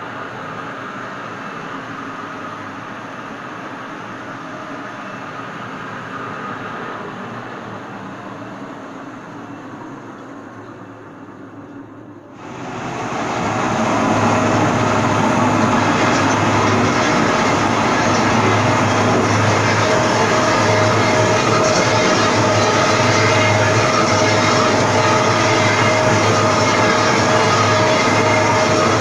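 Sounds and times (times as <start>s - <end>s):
metal lathe running: 12.4s - 29.0s.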